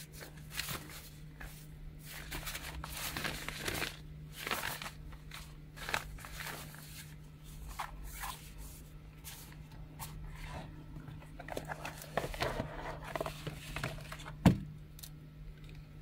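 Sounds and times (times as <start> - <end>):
cardboard packaging rustling: 0.0 - 14.4
steady low hum: 0.0 - 16.0.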